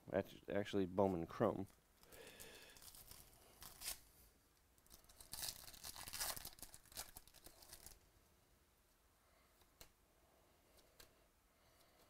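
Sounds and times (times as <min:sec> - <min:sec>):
foil wrapper tearing and crinkling: 0:02.6 - 0:04.0, 0:04.8 - 0:08.0.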